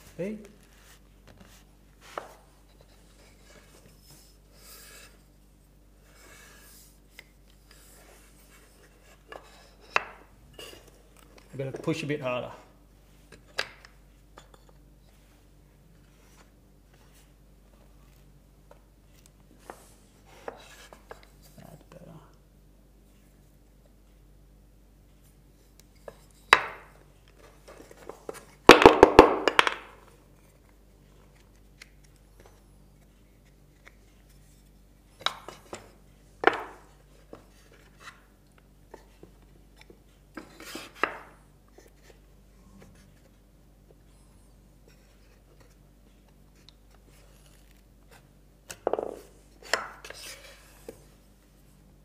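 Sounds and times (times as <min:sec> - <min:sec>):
wooden parts knocking and clattering: 0:26.5 - 0:30.0, 0:48.8 - 0:50.0.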